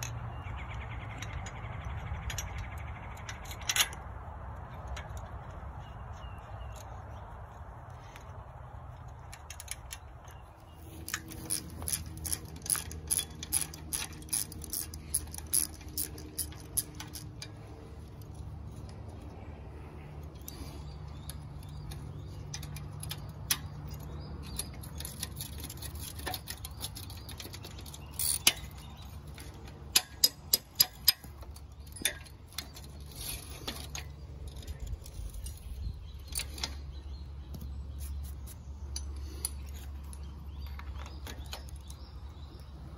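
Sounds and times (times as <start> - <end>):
steady low hum: 0.0 - 42.9
metal tools clinking: 9.0 - 42.9
socket ratchet clicking: 11.0 - 17.5.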